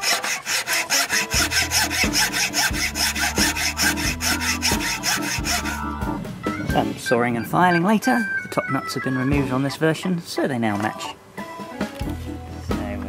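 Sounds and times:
hacksaw cutting plastic: 0:00.0 - 0:05.8.

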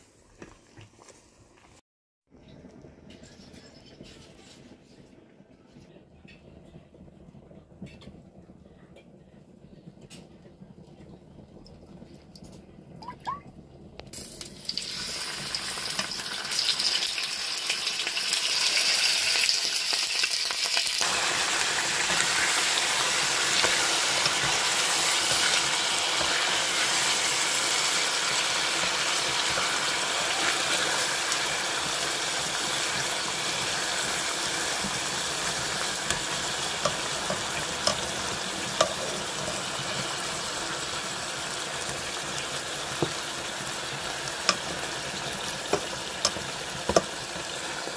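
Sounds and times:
meat sizzling in frying pan: 0:14.2 - 0:47.9.

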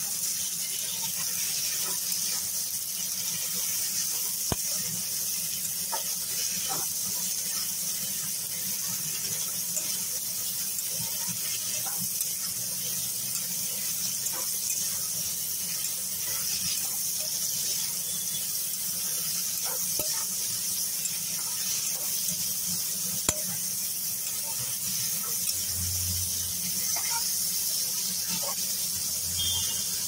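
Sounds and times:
vegetables sizzling in oil: 0:00.0 - 0:30.0
spatula scraping pan: 0:08.9 - 0:28.8.

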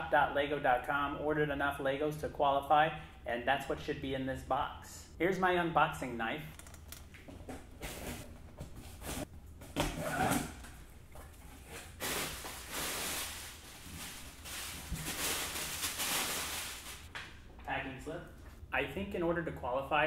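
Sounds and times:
plastic packing rustling: 0:10.2 - 0:17.1.

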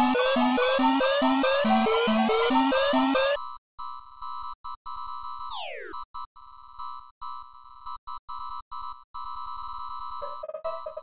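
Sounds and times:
electronic dance beat: 0:00.0 - 0:03.4
stuttering alarm tone: 0:00.0 - 0:03.4, 0:10.2 - 0:11.0.

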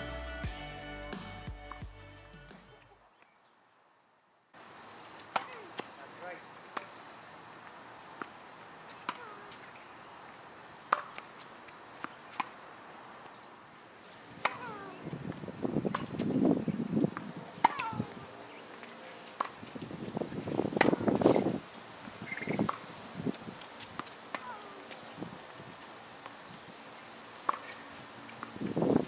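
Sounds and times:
tennis ball bouncing: 0:05.1 - 0:07.0, 0:08.2 - 0:09.8, 0:10.9 - 0:12.6, 0:14.2 - 0:18.2, 0:18.8 - 0:21.5, 0:22.4 - 0:22.8, 0:23.8 - 0:25.0, 0:27.4 - 0:28.7
racket hitting tennis ball: 0:05.2 - 0:07.0, 0:08.2 - 0:09.8, 0:10.9 - 0:12.6, 0:14.3 - 0:18.2, 0:18.8 - 0:21.6, 0:22.6 - 0:22.8, 0:23.8 - 0:25.1, 0:27.4 - 0:28.6
rough scuffing noise: 0:11.0 - 0:29.0.

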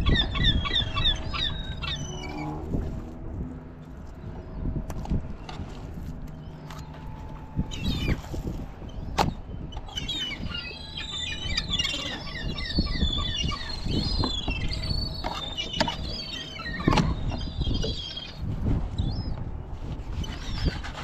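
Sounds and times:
birds chirping and squealing: 0:00.0 - 0:02.8, 0:07.6 - 0:19.4, 0:20.1 - 0:21.0
steady low rumble: 0:00.0 - 0:21.0.

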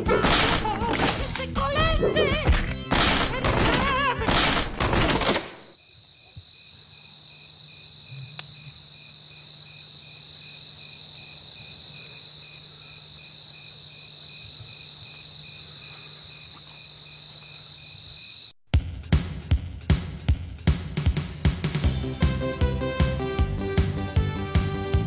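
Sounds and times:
crickets chirping: 0:05.5 - 0:18.6.

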